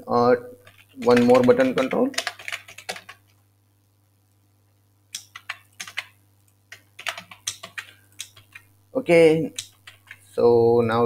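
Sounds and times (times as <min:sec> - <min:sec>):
computer keyboard key clicks: 0:05.2 - 0:08.7.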